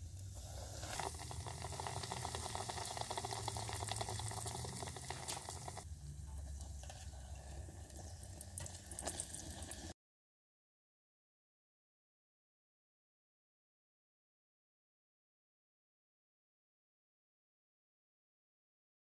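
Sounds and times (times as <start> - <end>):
donuts deep-frying in hot oil: 0.0 - 10.0.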